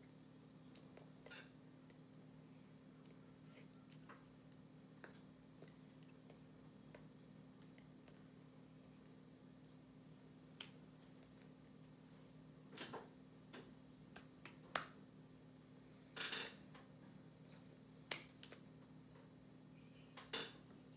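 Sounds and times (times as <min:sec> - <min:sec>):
low steady hum: 0:00.0 - 0:20.9
hands tapping and slapping: 0:14.1 - 0:15.0, 0:18.1 - 0:18.6.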